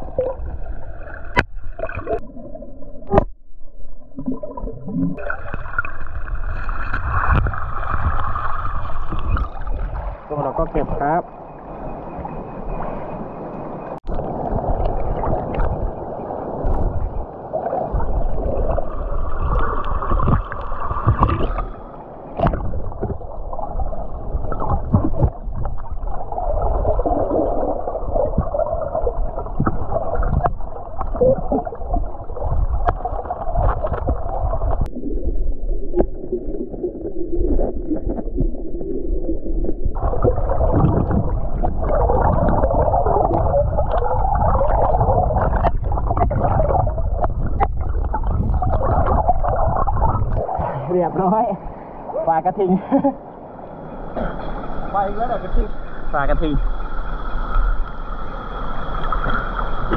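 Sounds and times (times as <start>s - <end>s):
muffled underwater water gurgle: 0.0s - 53.1s, 53.9s - 59.9s
underwater clicks and knocks: 1.3s - 2.2s, 3.0s - 6.2s, 6.8s - 8.3s, 8.9s - 10.0s, 19.5s - 21.7s, 22.4s - 23.3s, 24.5s - 25.9s, 29.5s - 31.6s, 39.9s - 50.6s.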